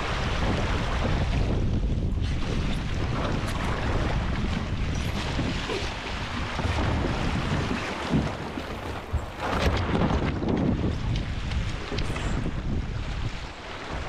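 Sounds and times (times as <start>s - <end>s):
water washing along hulls: 0.0s - 14.0s
wind buffeting microphone: 0.0s - 14.0s.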